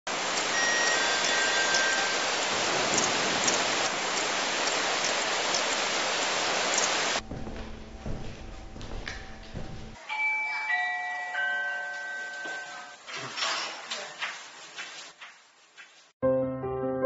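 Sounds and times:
low hum: 0:07.2 - 0:10.0.

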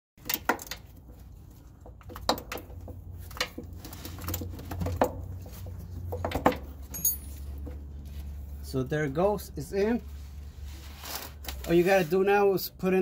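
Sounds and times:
metal clicks and knocks: 0:00.2 - 0:07.8.

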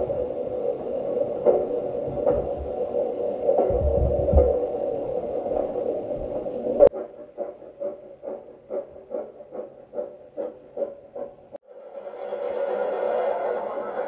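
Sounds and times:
model train regular pulsing: 0:00.0 - 0:03.7, 0:04.4 - 0:14.0
model train humming: 0:04.5 - 0:14.0.

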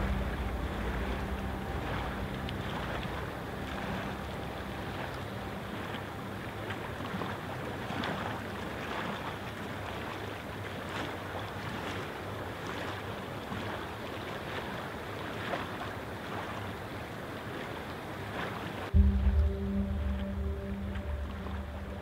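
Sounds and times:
steady rushing noise: 0:00.0 - 0:09.2, 0:18.9 - 0:22.0.

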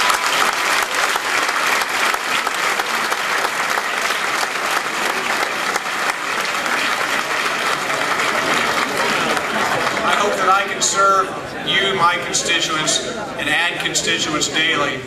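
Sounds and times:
crowd applauding: 0:00.0 - 0:11.2.

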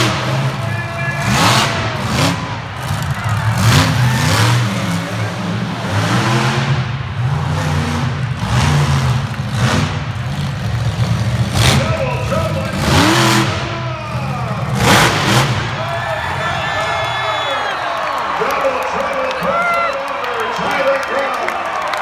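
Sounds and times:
truck engine revving: 0:00.0 - 0:17.4.

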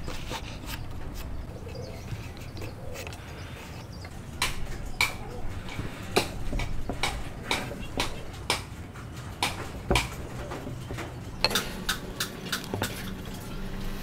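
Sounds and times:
wood knocking on workbench: 0:09.4 - 0:11.7.

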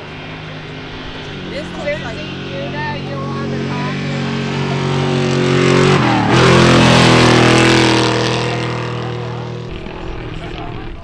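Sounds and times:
truck engine racing past: 0:00.0 - 0:11.0.

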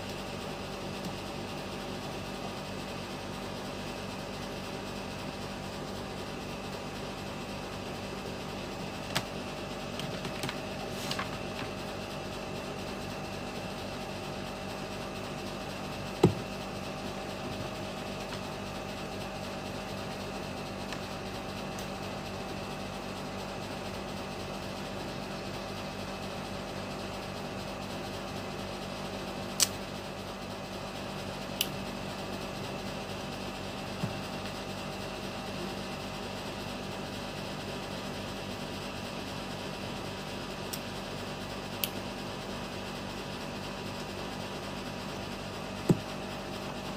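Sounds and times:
background hum and hiss: 0:00.0 - 0:46.9
dull knock: 0:16.2 - 0:16.5.

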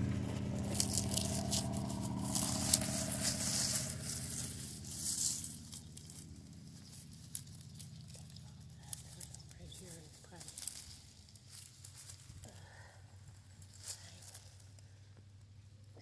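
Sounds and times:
dry leaves rustling and crackling: 0:00.0 - 0:15.1
engine-like hum: 0:00.0 - 0:16.0.

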